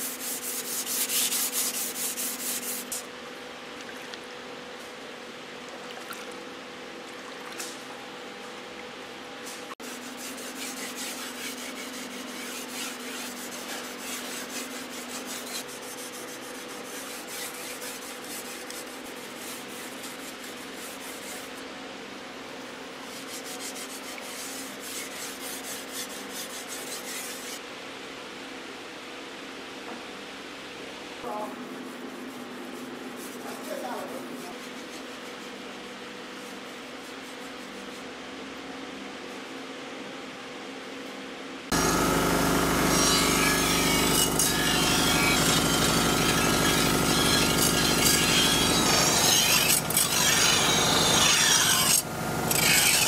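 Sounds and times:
knife scraping on whetstone: 0:41.9 - 0:53.0.

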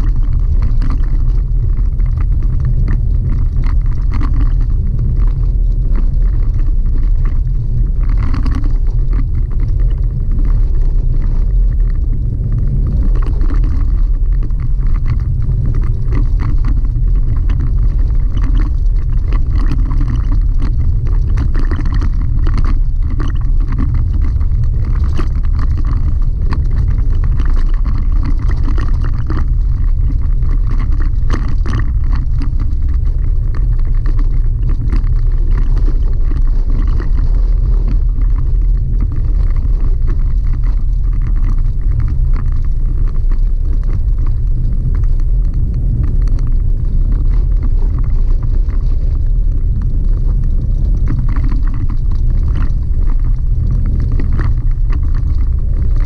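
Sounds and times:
gravel ticks and rattles: 0:00.0 - 0:56.0
low rumble of tyres and drivetrain: 0:00.0 - 0:56.0.

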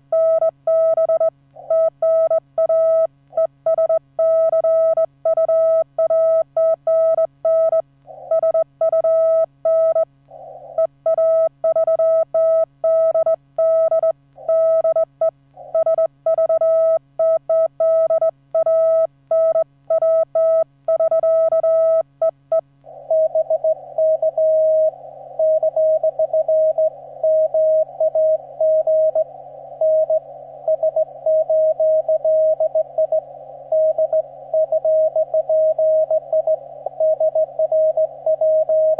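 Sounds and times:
morse code tones: 0:10.8 - 0:38.9.

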